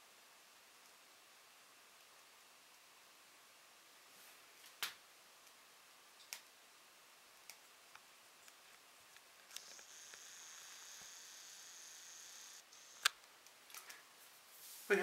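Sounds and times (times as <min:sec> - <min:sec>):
faint clicks: 0:07.4 - 0:11.2
camera zoom motor whine: 0:09.5 - 0:13.1.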